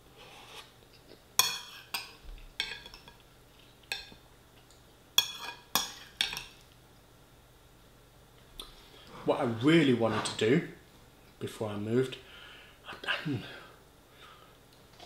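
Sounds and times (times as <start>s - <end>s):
metal spoon clinking on ceramic bowl: 5.2s - 6.5s.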